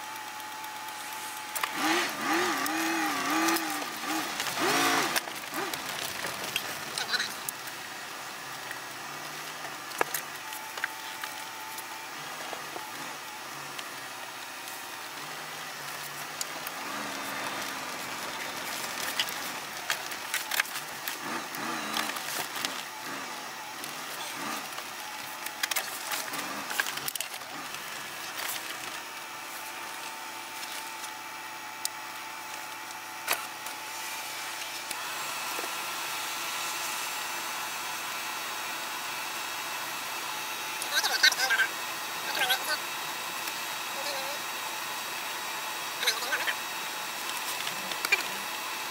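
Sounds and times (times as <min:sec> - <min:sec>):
crackles and clicks: 0:00.0 - 0:31.2.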